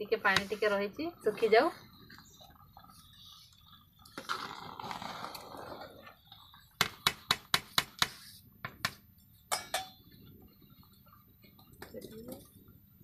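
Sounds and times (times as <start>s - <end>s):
metal ladle clinking on pot: 9.5s - 10.0s.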